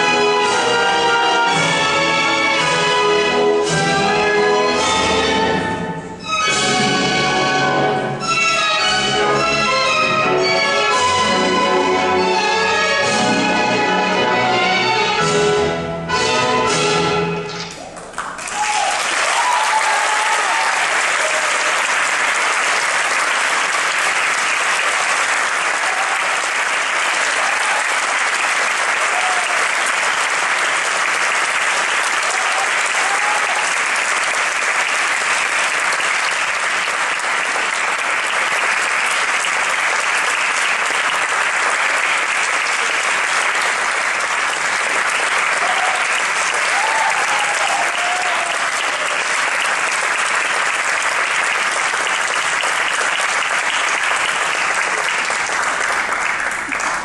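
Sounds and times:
audience applauding: 0:17.6 - 0:57.0.

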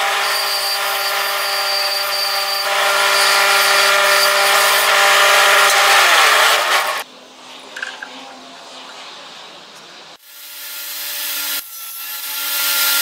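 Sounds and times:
bandsaw motor humming: 0:00.0 - 0:07.0
saw blade rasping through wood: 0:00.0 - 0:07.0.

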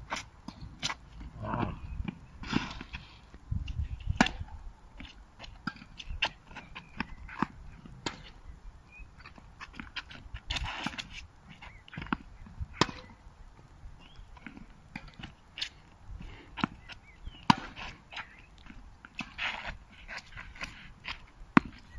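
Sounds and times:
tennis ball struck by racket: 0:12.8 - 0:13.0, 0:17.5 - 0:17.8
tennis ball bouncing on hard court: 0:12.8 - 0:13.1.

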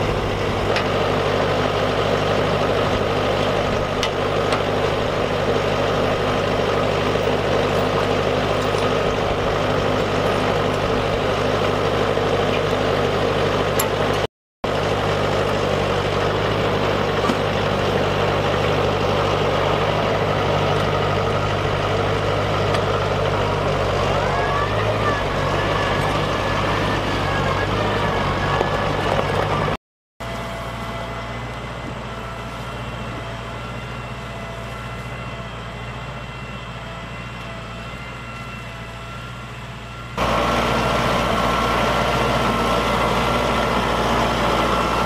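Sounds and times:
diesel tractor engine idling: 0:00.0 - 0:45.0.

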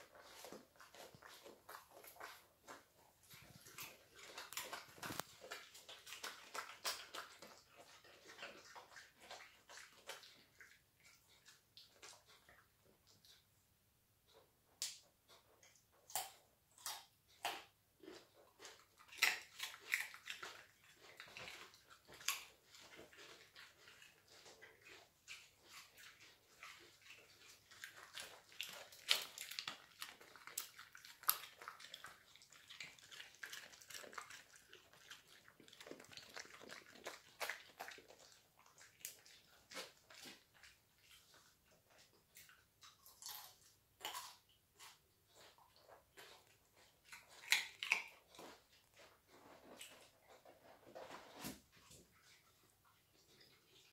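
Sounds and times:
dog crunching carrot: 0:00.0 - 0:12.5, 0:14.3 - 0:53.9.

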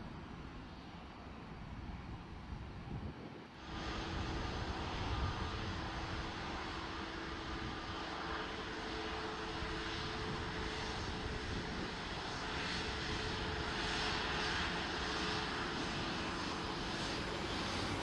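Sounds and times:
airliner engines running: 0:00.0 - 0:18.0.

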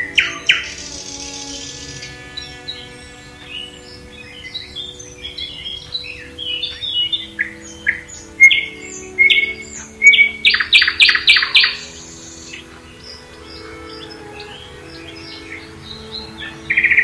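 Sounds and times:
songbirds singing: 0:00.0 - 0:17.0
bird singing rapid repeated notes: 0:00.1 - 0:17.0.

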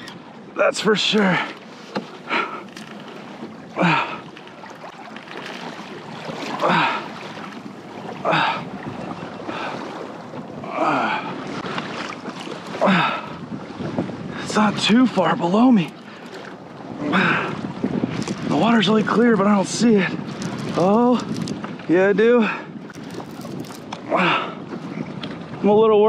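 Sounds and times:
water washing against kayak hull: 0:00.0 - 0:26.0
wind: 0:00.0 - 0:26.0.

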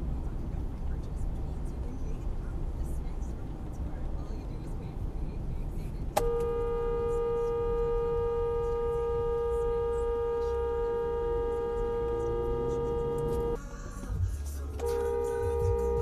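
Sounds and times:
car horn blast: 0:06.2 - 0:13.6, 0:14.8 - 0:16.0.

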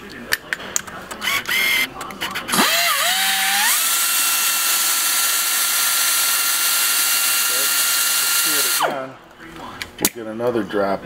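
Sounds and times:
air grinder high whine: 0:02.5 - 0:09.1.

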